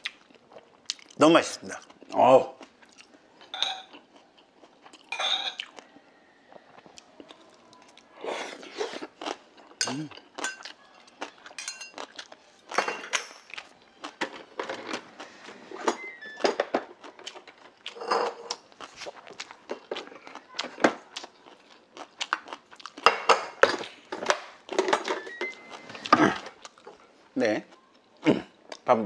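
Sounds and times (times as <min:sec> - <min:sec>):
person chewing food: 0:00.0 - 0:12.8, 0:13.4 - 0:14.2, 0:14.8 - 0:15.8, 0:16.8 - 0:24.8, 0:25.4 - 0:28.9
chopsticks clinking on metal bowl: 0:03.5 - 0:04.0, 0:09.8 - 0:13.6.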